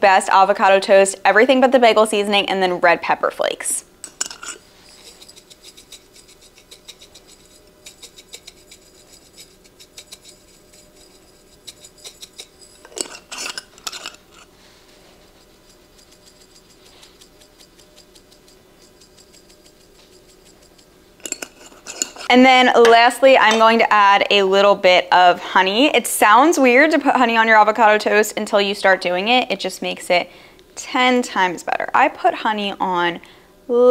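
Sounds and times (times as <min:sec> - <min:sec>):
seasoning rattling from shakers: 0:04.0 - 0:22.3
shaker clatter: 0:04.0 - 0:22.3.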